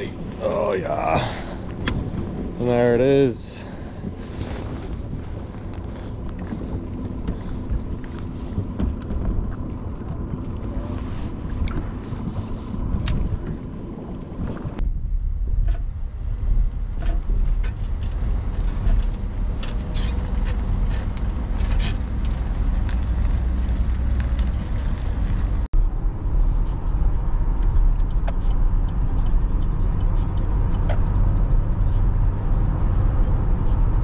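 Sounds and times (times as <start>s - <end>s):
low road rumble: 0.0s - 34.0s
road noise inside car cabin: 0.0s - 34.0s
music on car stereo: 25.8s - 34.0s.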